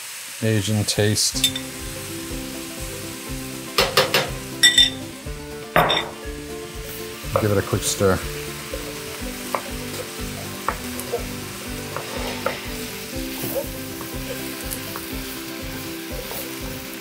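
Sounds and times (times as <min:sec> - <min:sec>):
rice sizzling in a pan: 0:00.0 - 0:17.0
wooden spatula scraping pan: 0:07.4 - 0:15.1.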